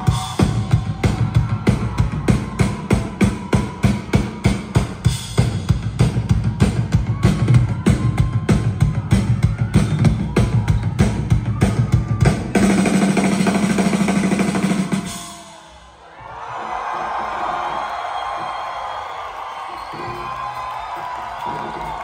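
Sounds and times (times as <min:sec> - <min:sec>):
drum kit beat: 0:00.0 - 0:15.8.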